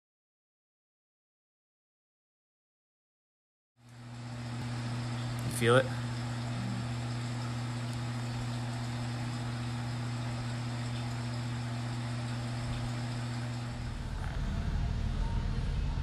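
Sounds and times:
appliance electrical hum: 0:03.8 - 0:16.0.

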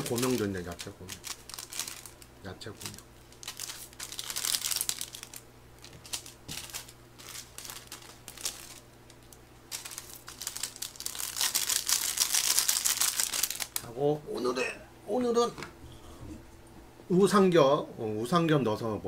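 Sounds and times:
plastic sachet crinkling: 0:00.0 - 0:13.9.

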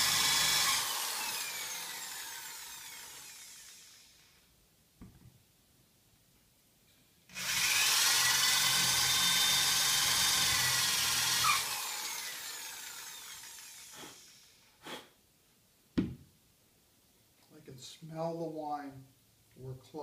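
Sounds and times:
electric drill motor: 0:00.0 - 0:04.4, 0:07.3 - 0:14.7.

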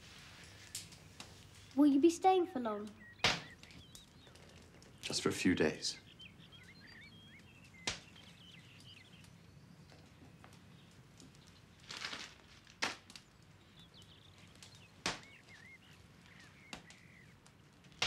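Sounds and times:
faint bird chirps: 0:00.2 - 0:11.8, 0:13.3 - 0:17.4
paper rustle: 0:11.8 - 0:12.8.

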